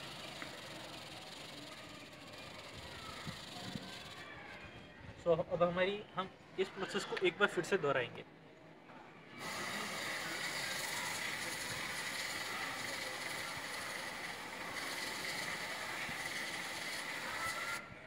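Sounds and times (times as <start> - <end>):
aerosol spray hissing: 9.4 - 17.8.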